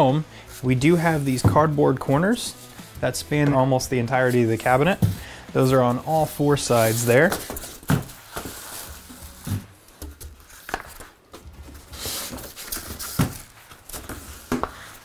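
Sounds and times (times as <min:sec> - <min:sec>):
cardboard scraping and rustling: 0:04.2 - 0:15.0
cardboard knocks and thumps: 0:04.9 - 0:05.3, 0:07.3 - 0:08.6.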